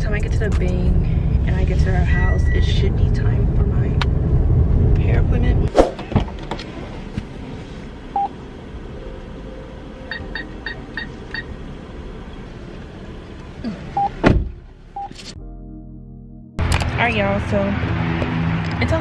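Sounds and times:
atm beeping: 0:10.0 - 0:11.6.

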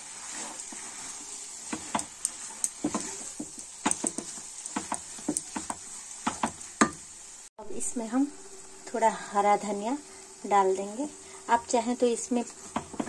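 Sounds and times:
spatula scraping and tapping pan: 0:00.0 - 0:07.1, 0:12.6 - 0:13.0
food sizzling: 0:00.0 - 0:13.0.

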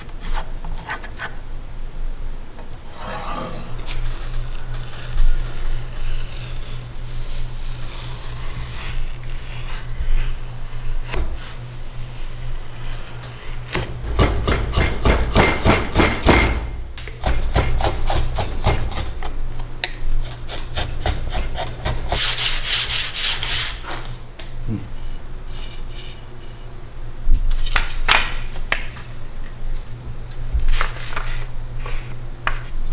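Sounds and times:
tool scraping wood: 0:02.8 - 0:19.3, 0:20.2 - 0:23.8.

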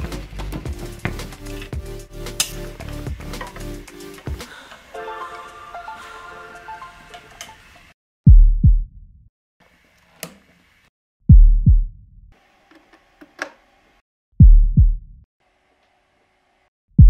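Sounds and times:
heartbeat thumps: 0:08.3 - 0:09.0, 0:11.3 - 0:12.0, 0:14.4 - 0:15.1.

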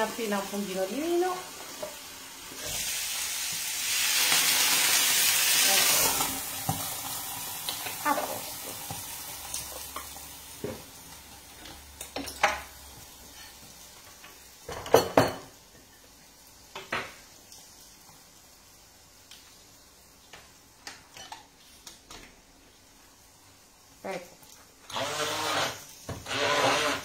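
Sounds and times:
frying sizzle: 0:00.0 - 0:24.9, 0:25.6 - 0:26.3
pots and pans clattering: 0:14.7 - 0:15.6.

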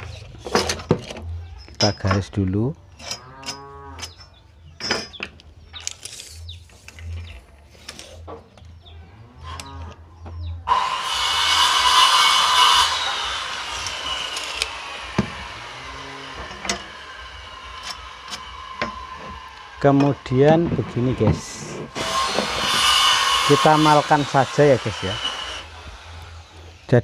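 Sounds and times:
power tool whining: 0:10.7 - 0:26.9.

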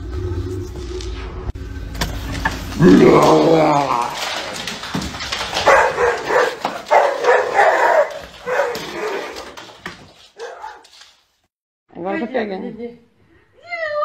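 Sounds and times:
dog barking: 0:05.6 - 0:09.4, 0:10.4 - 0:10.8.

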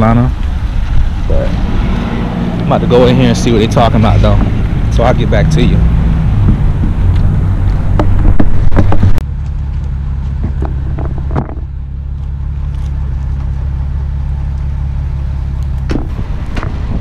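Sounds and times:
wind rumble on microphone: 0:00.0 - 0:02.7, 0:04.2 - 0:09.2, 0:15.6 - 0:17.0.

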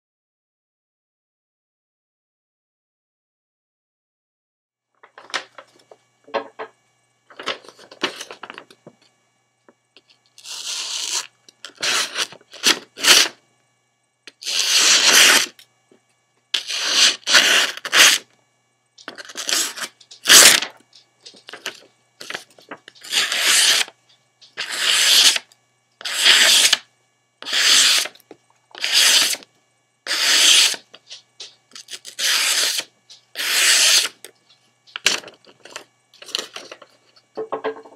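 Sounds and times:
paper rustling: 0:05.1 - 0:05.7, 0:07.3 - 0:08.7, 0:19.1 - 0:23.9, 0:35.0 - 0:37.3
knife slicing paper: 0:14.4 - 0:15.5, 0:16.6 - 0:18.2, 0:19.2 - 0:20.7, 0:23.0 - 0:23.9, 0:24.6 - 0:25.4, 0:26.0 - 0:26.8, 0:27.4 - 0:28.2, 0:28.8 - 0:29.4, 0:30.1 - 0:31.2, 0:31.8 - 0:34.2.

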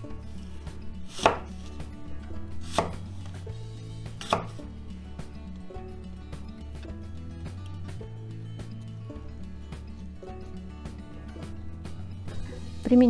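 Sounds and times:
knife chopping on cutting board: 0:01.1 - 0:01.6, 0:02.6 - 0:03.2, 0:04.2 - 0:04.6.

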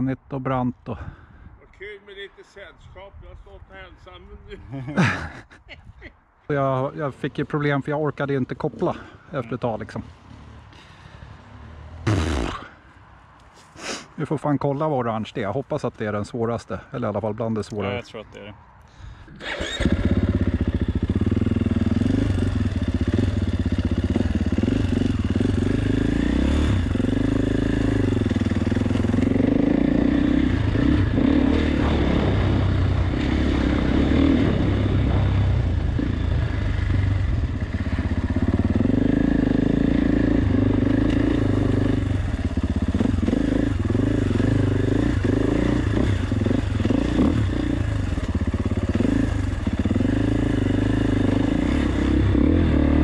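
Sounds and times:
motorcycle engine revving: 0:07.6 - 0:12.8, 0:19.4 - 0:53.0.

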